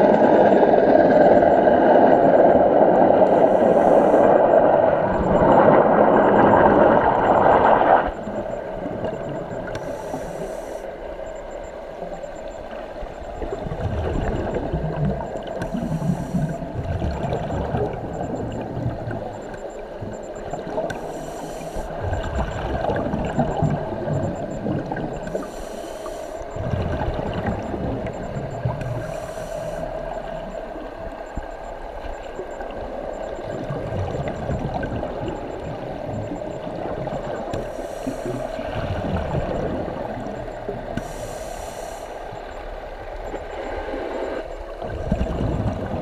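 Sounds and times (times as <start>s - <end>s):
regulator hiss: 3.3s - 4.4s, 9.8s - 10.9s, 15.6s - 16.6s, 20.9s - 21.9s, 25.3s - 26.5s, 28.9s - 30.6s, 37.6s - 38.6s, 41.0s - 42.4s
bubbles gurgling underwater: 4.4s - 9.8s, 13.4s - 19.4s, 21.9s - 25.5s, 26.5s - 29.0s, 32.6s - 37.6s, 38.6s - 41.0s, 44.7s - 46.0s.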